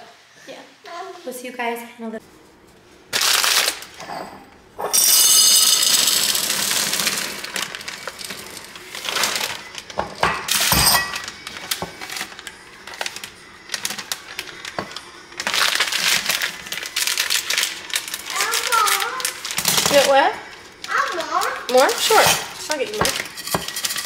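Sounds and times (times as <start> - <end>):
dry pasta and packaging rattling: 3.1 - 4.0, 5.2 - 24.0
glass clink: 4.0 - 6.1, 10.2 - 11.3
chocolate chips rattling in glass jar: 4.9 - 9.7, 15.4 - 20.3, 21.0 - 24.0.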